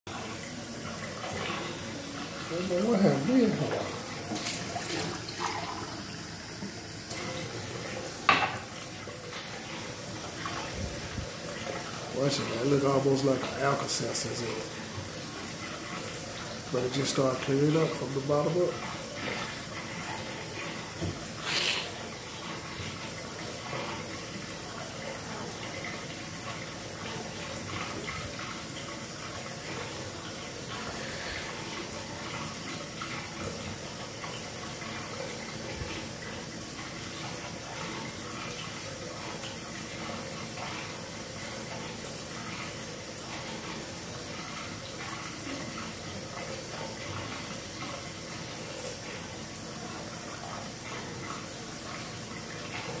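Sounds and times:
tap running into a sink: 0.1s - 49.3s
glass knocking on countertop: 8.3s - 8.6s.

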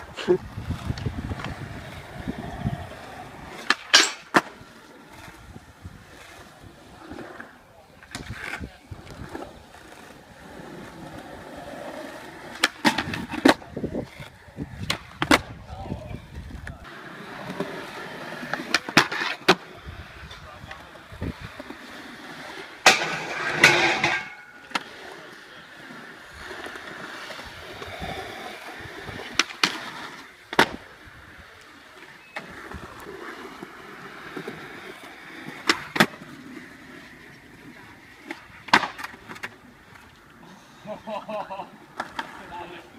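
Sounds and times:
skateboard clacking on ground: 0.0s - 40.2s, 41.8s - 42.9s
skateboard wheels rolling on concrete: 0.0s - 42.9s
skateboard wooden clacks: 29.1s - 30.8s, 38.2s - 40.1s.

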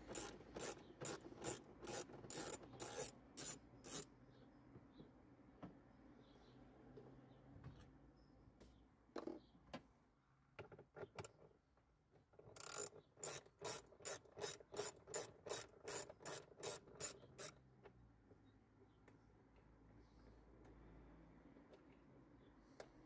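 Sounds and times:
ratchet wrench clicking: 0.0s - 4.1s, 12.6s - 17.6s.

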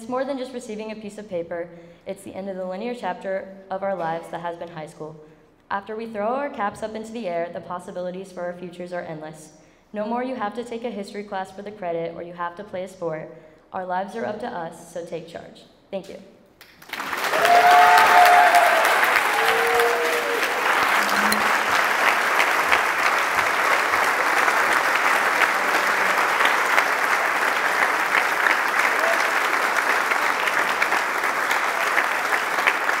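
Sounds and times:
audience applauding: 16.6s - 33.0s
voices cheering: 17.0s - 33.0s.

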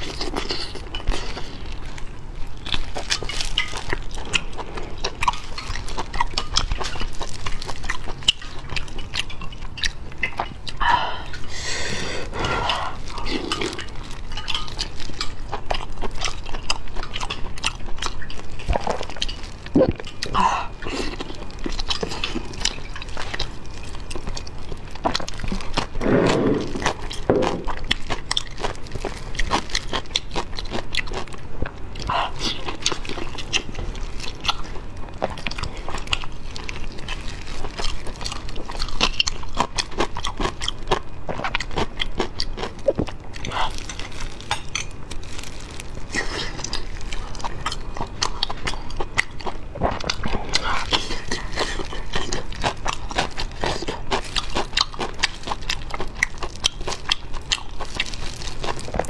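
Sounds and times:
wet chewing and lip smacking: 0.0s - 11.6s, 12.2s - 26.0s, 26.6s - 59.0s
food tearing apart: 50.0s - 59.0s.

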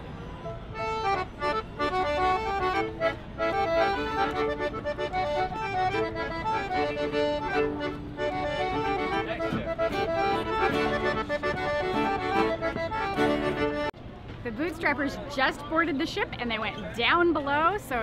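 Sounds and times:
accordion: 0.0s - 14.0s
fiddle: 0.3s - 13.9s
acoustic guitar strumming: 1.0s - 13.9s.

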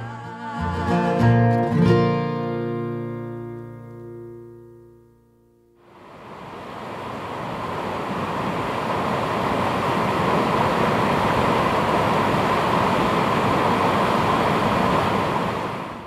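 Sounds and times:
waterfall rushing: 5.9s - 16.0s.

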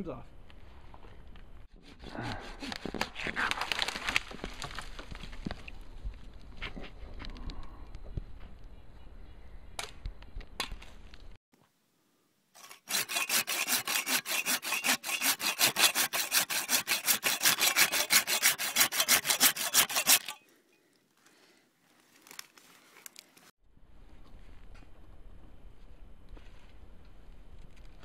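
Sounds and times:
hand saw cutting tree limb: 1.7s - 3.8s, 12.6s - 20.4s.

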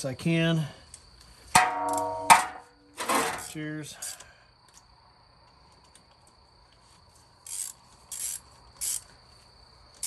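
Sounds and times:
hand ratchet clicking: 7.5s - 9.1s.

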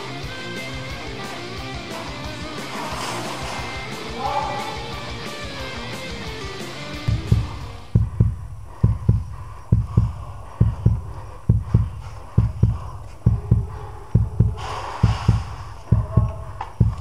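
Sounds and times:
heartbeat thumps: 6.1s - 17.0s.

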